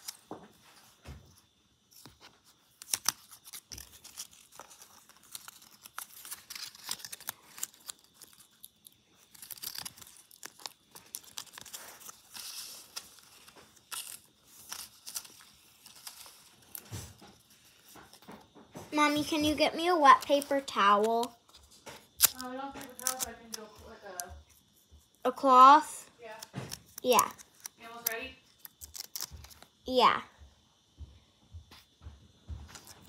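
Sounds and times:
paper and plastic rustling: 0:00.0 - 0:24.4.

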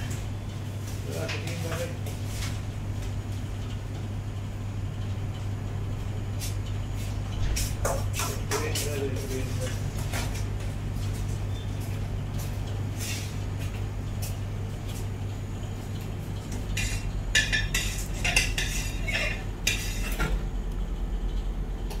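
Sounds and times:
steady low hum: 0:00.0 - 0:22.0
utensils and dishes clinking: 0:16.8 - 0:20.4.

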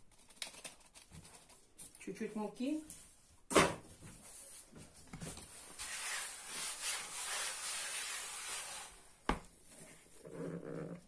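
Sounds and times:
hand brushing flour on board: 0:05.7 - 0:09.0.

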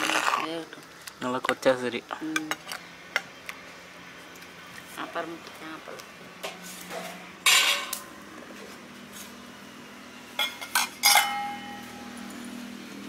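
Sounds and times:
metal vessels clinking: 0:06.9 - 0:08.1, 0:10.4 - 0:12.1
ringing metal clang: 0:10.4 - 0:12.1
metal vessel scraping: 0:10.4 - 0:12.4.

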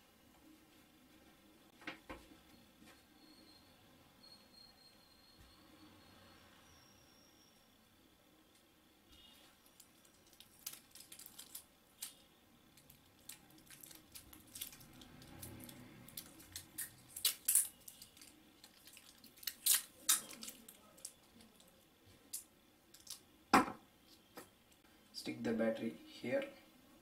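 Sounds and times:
small clicks and crinkles: 0:08.6 - 0:23.2.

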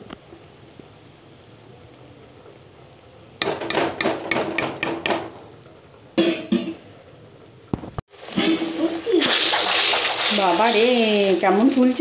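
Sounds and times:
metal spoon knocking on metal pan: 0:03.4 - 0:05.3, 0:06.2 - 0:06.8.

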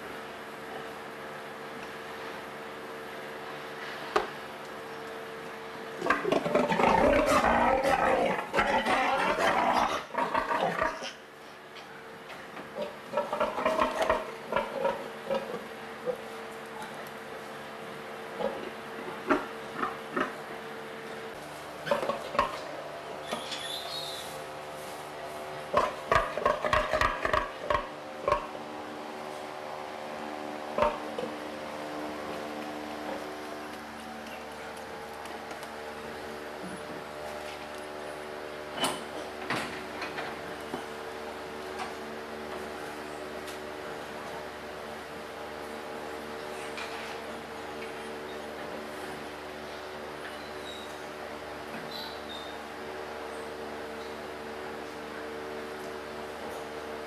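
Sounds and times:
steady hum: 0:00.0 - 0:48.1.

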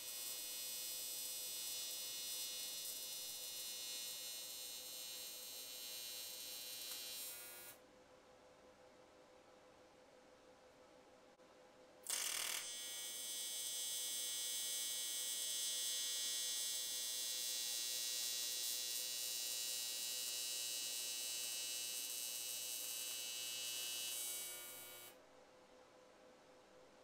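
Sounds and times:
high-pitched welding buzz: 0:00.0 - 0:07.8, 0:12.0 - 0:25.2
welding arc hiss: 0:00.0 - 0:07.8, 0:12.1 - 0:25.1.

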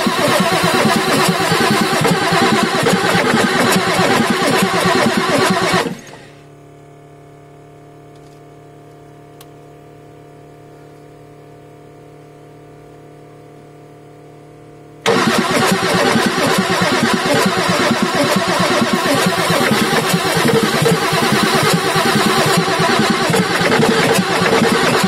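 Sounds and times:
diesel engine cranking: 0:00.0 - 0:06.2, 0:15.0 - 0:25.0
faint steady hum: 0:06.0 - 0:15.1.

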